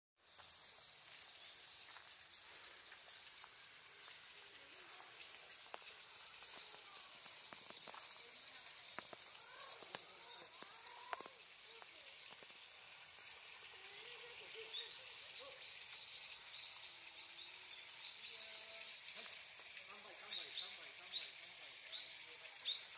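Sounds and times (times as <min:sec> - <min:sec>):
high hiss: 0:00.2 - 0:22.9
faint voices: 0:04.4 - 0:12.5, 0:13.6 - 0:15.9
bird chirps: 0:14.6 - 0:19.3, 0:20.2 - 0:22.9.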